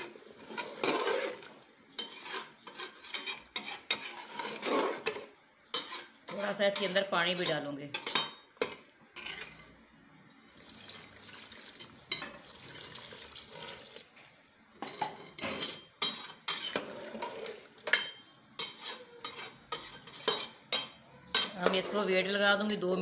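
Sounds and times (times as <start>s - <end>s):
water poured into a pot: 10.5s - 14.2s.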